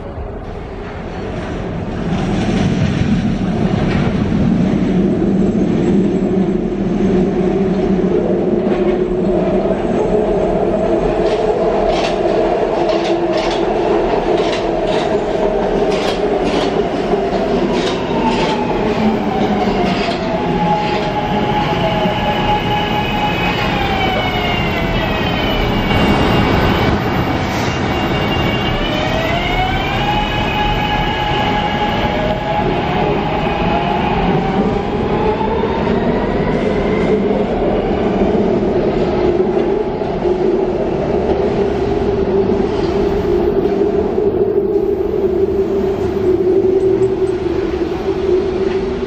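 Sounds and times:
subway train rumble: 0:00.0 - 0:49.0
train propulsion whine: 0:10.6 - 0:37.3.

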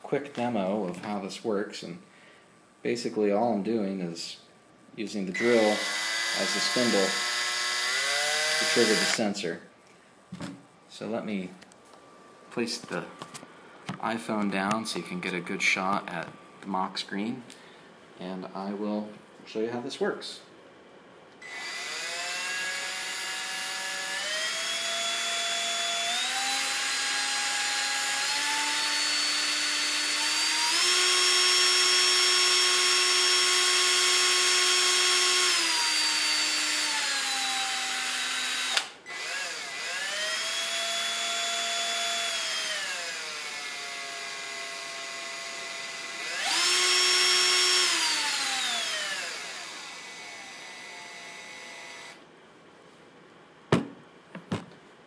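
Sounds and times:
cordless drill motor whine: 0:05.4 - 0:09.2, 0:21.4 - 0:52.2
drill trigger click: 0:05.4 - 0:09.2, 0:38.4 - 0:40.1.

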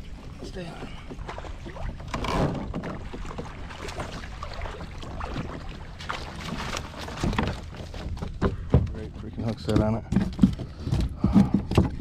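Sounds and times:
fish splashing in water: 0:02.6 - 0:08.5.

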